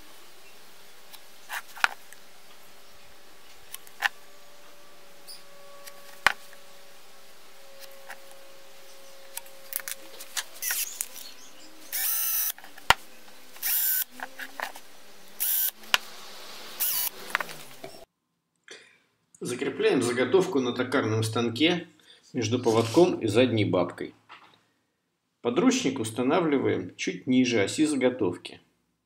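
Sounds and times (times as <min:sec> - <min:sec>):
power drill boring wood: 0:03.6 - 0:18.0.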